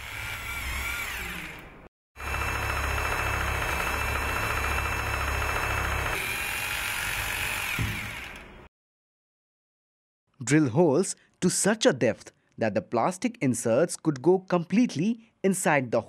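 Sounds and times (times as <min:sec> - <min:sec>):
hammer drill drilling into tile: 0:00.0 - 0:08.5.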